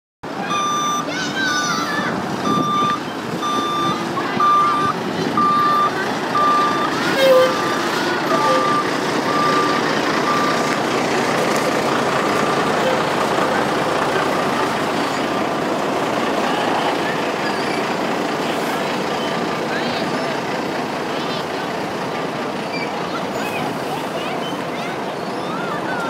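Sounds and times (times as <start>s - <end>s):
truck engine running: 0.2s - 26.0s
backup alarm beeping: 0.5s - 1.1s, 2.4s - 10.7s.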